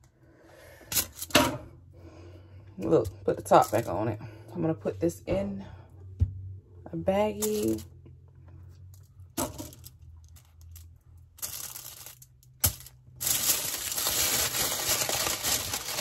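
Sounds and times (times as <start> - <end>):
aluminium foil crinkling: 9.6 - 16.0.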